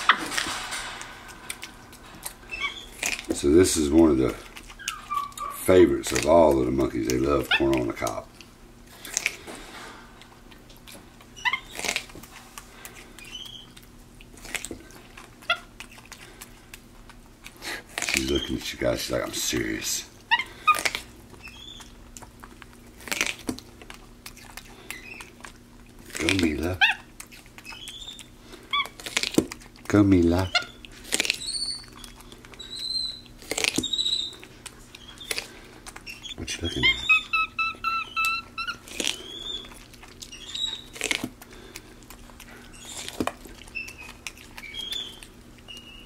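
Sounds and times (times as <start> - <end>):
monkey chewing corn crunches: 0.0 - 46.0
monkey squeaks: 2.4 - 3.3, 4.8 - 5.6, 11.4 - 12.1, 13.2 - 13.8, 20.3 - 22.0, 26.4 - 29.0, 30.4 - 34.4, 35.0 - 41.2, 42.7 - 46.0.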